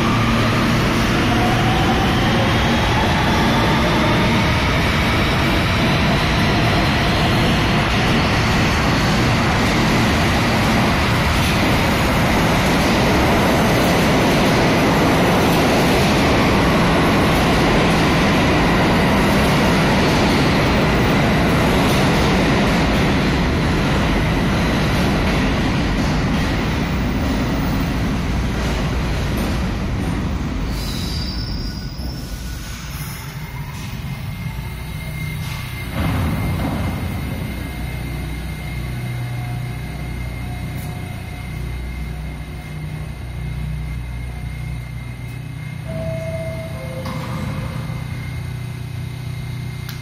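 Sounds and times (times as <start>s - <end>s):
train wheels rumbling on rail: 0.0s - 50.0s
thin high whine: 44.4s - 49.9s.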